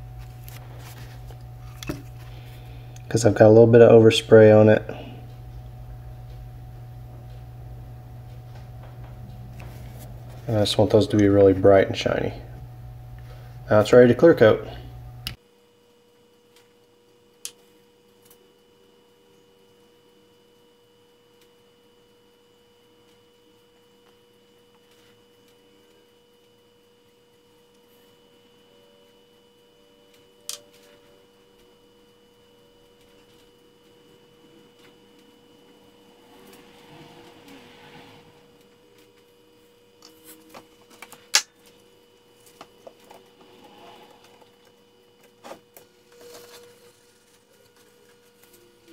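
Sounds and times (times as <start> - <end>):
faint electrical hum: 0.0 - 48.9.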